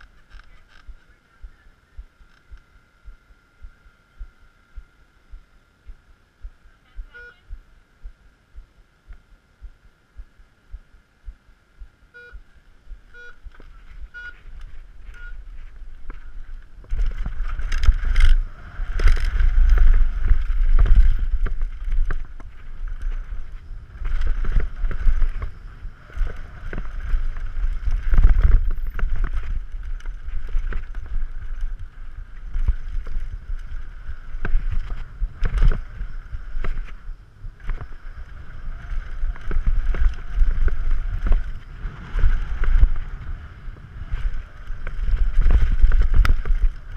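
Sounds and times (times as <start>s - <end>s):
wind on microphone: 0.0s - 46.9s
bike tyres on hardpack: 12.2s - 46.9s
bike knocks and rattles: 13.4s - 38.0s, 43.8s - 46.9s.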